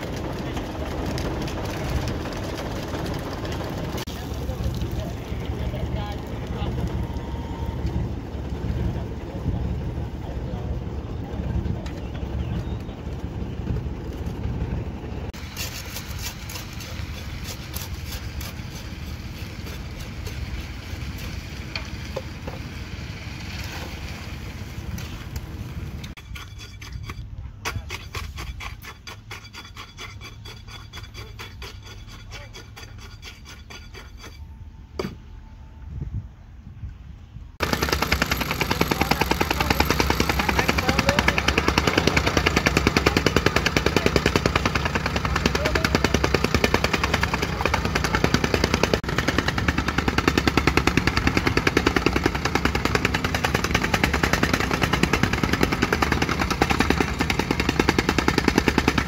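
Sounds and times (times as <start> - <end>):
rammer compactor hammering: 0.0 - 4.1, 37.6 - 59.0
truck engine running: 0.0 - 15.6, 37.6 - 59.0.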